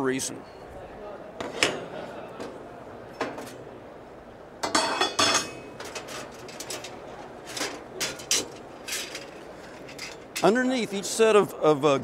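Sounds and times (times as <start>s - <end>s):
metal grill grates clanking: 4.6s - 10.6s.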